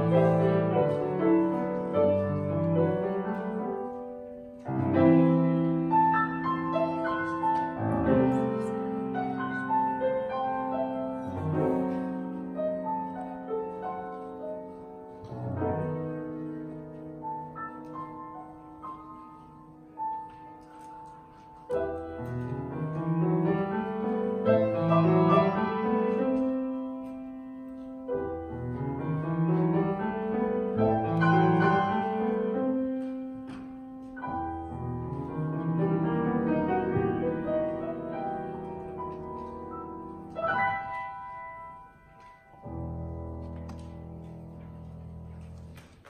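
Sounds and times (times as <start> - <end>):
solo grand piano: 0.0 - 46.0.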